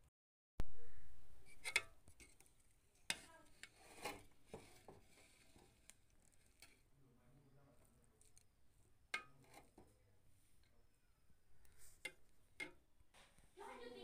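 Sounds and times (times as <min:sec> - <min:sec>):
spoon scraping metal pot: 0:01.5 - 0:02.5, 0:03.1 - 0:06.9, 0:09.1 - 0:09.9, 0:11.6 - 0:12.8.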